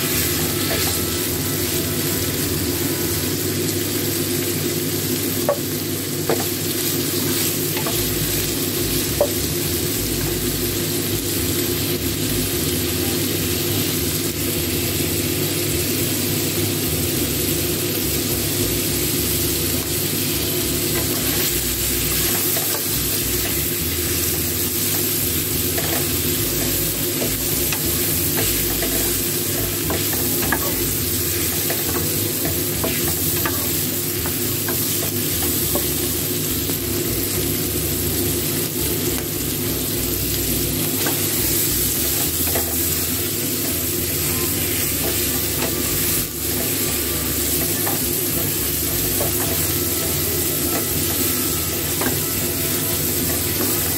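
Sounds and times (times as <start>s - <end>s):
meat sizzling in a frying pan: 0.0s - 53.9s.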